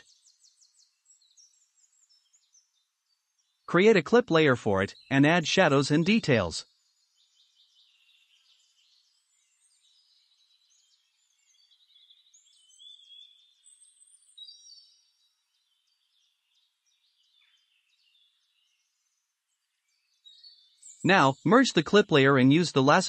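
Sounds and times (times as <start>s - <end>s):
faint birds chirping: 0.0s - 23.0s.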